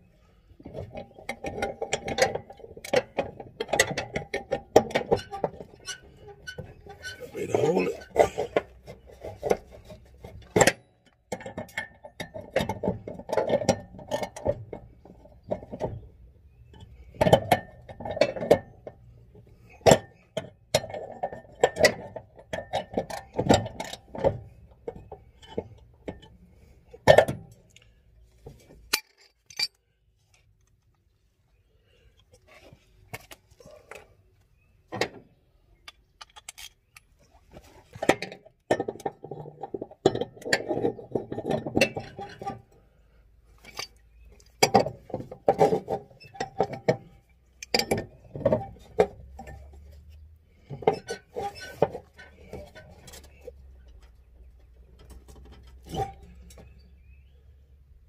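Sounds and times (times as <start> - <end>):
metal tools clinking and rattling: 28.7 - 30.5, 35.9 - 37.3, 43.6 - 54.1.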